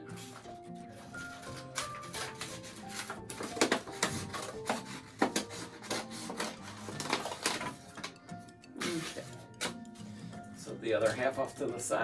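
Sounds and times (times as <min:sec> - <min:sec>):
quiet background music: 0:00.0 - 0:12.0
paper rustling: 0:00.1 - 0:08.2
scissors snipping paper: 0:00.3 - 0:08.2, 0:08.8 - 0:09.8.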